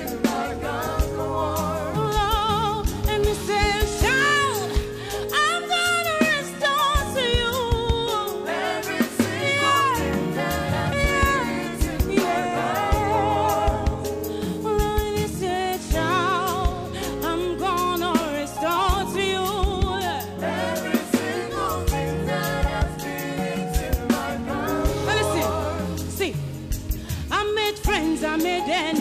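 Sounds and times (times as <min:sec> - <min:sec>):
backing singers: 0:00.0 - 0:04.8, 0:08.3 - 0:14.3, 0:20.0 - 0:26.4
band with keyboard and drums: 0:00.0 - 0:29.0.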